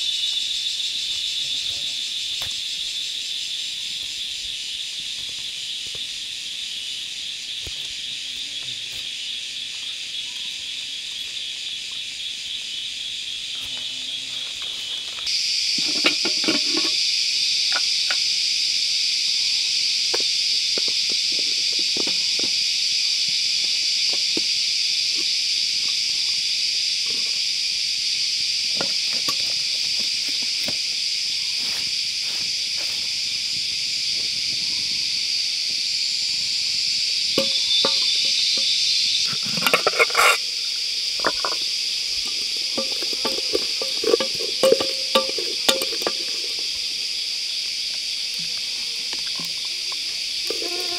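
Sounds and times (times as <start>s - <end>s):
high-pitched insect chorus: 0.0s - 50.9s.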